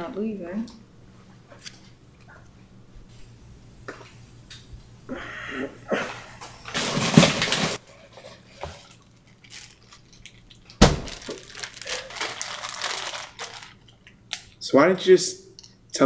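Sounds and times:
ice cubes clattering: 6.7 - 7.8, 8.6 - 14.1
ice cracking: 9.4 - 13.8.

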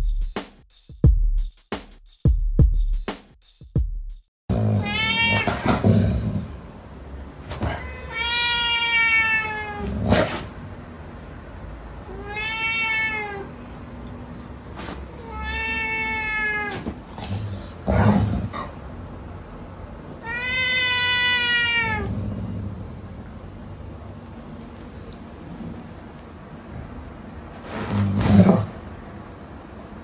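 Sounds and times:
cat meowing: 4.7 - 5.9, 7.5 - 10.0, 12.0 - 13.8, 15.1 - 17.8, 20.2 - 22.2.

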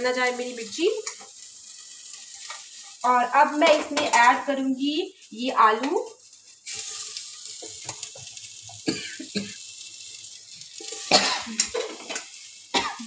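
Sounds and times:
potatoes sizzling in hot oil: 0.0 - 13.0
person coughing: 8.9 - 9.6, 11.1 - 11.8, 12.8 - 13.0.

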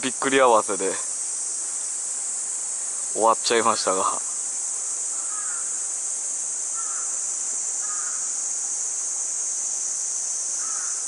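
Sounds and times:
insects droning: 0.0 - 11.0
bird calls: 3.7 - 5.9, 6.7 - 8.6, 10.4 - 11.0.

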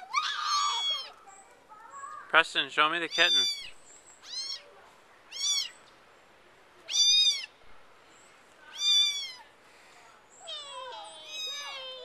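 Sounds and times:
kittens meowing: 0.0 - 1.2, 3.0 - 4.7, 5.3 - 5.8, 6.9 - 7.5, 8.7 - 9.5, 10.4 - 12.0.

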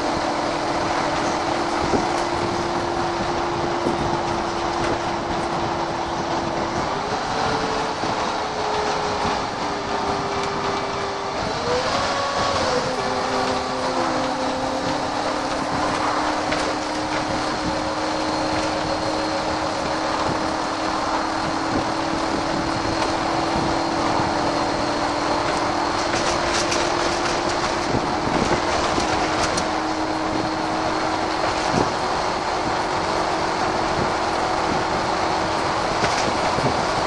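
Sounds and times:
bus drivetrain whine: 0.0 - 37.0
road noise: 0.0 - 37.0.

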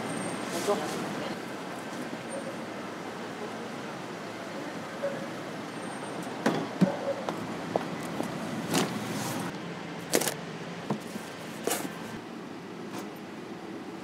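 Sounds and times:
street traffic hum: 0.0 - 14.0.

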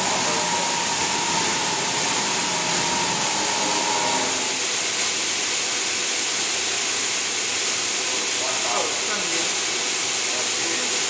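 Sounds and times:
faint machine whine: 0.0 - 4.7
machining center hissing: 0.0 - 5.0.

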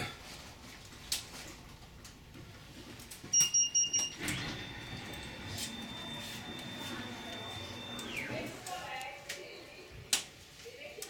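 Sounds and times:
background noise: 0.0 - 11.0
short electronic beeps: 3.3 - 8.6.

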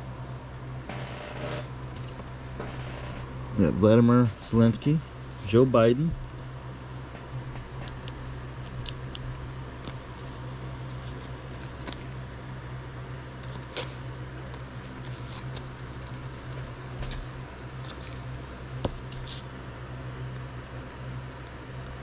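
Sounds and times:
low hum: 0.0 - 22.0
trading card clicks and rustles: 7.2 - 12.3, 13.4 - 19.6.

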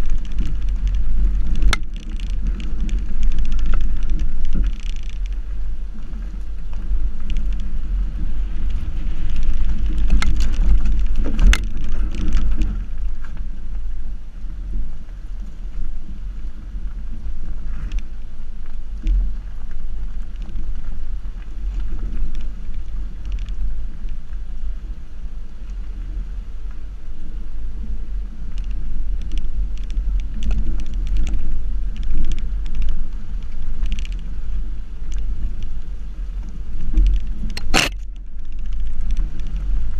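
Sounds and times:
stones crunching under tyre: 0.0 - 13.5
tyre rumbling on gravel: 0.0 - 13.8.

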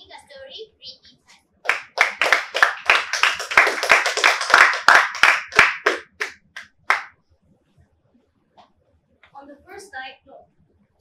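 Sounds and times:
audience clapping: 1.7 - 7.1.

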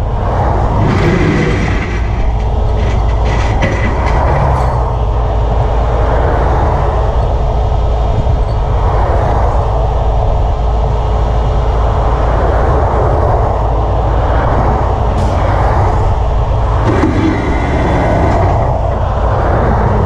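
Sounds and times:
highway traffic passing: 0.0 - 20.0
steady low rumble: 0.0 - 20.0.

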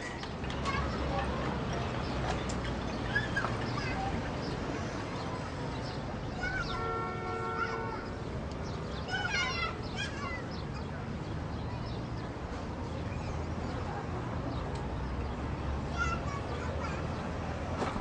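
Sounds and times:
low street rumble: 0.0 - 18.0
vehicle horn: 6.8 - 8.0.

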